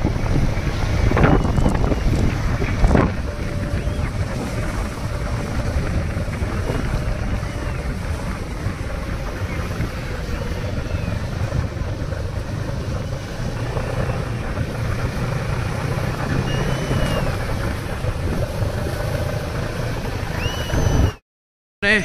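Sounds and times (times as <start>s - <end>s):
vehicle engine running: 0.0s - 21.2s
wind noise on microphone: 0.0s - 21.2s.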